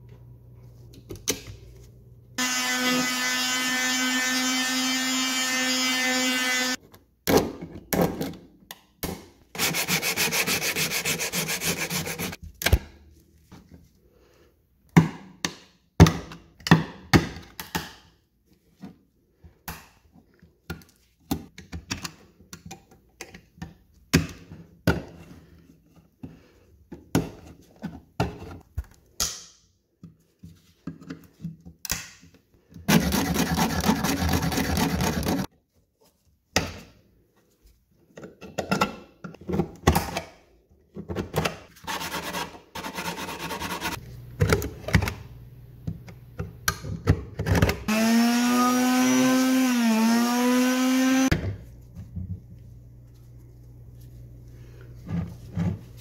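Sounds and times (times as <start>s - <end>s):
blade scraping wood: 9.6s - 12.4s, 32.9s - 35.5s, 41.9s - 44.0s.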